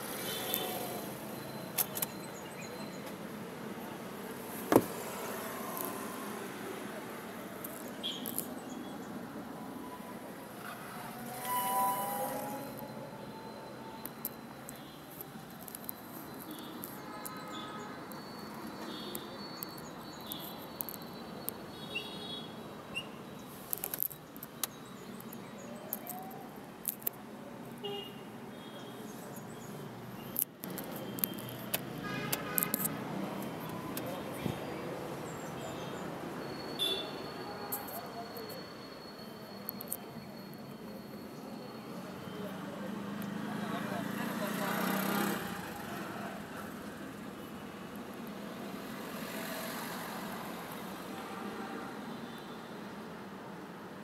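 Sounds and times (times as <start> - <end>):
traffic noise from inside car: 0.0 - 54.0
sharp thump: 4.7 - 5.0.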